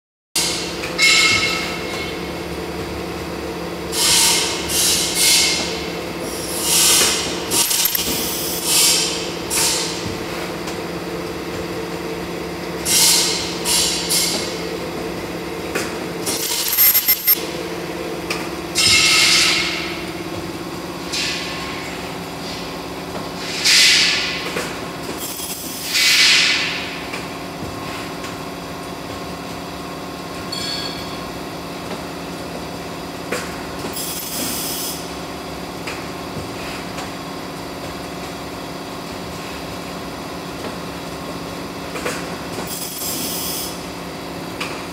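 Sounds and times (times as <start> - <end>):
mechanism clacks: 7.5 - 8.2, 16.3 - 17.4.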